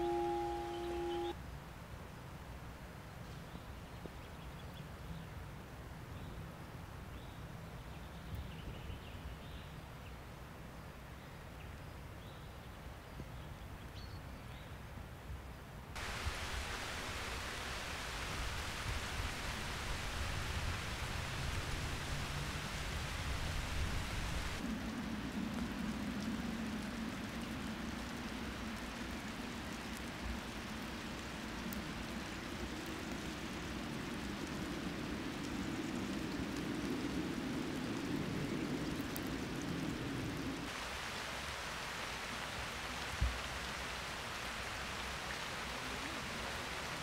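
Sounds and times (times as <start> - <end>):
faint birdsong: 0.0 - 1.4
steady rain hiss: 0.0 - 47.0
wind rumble on microphone: 13.0 - 40.8.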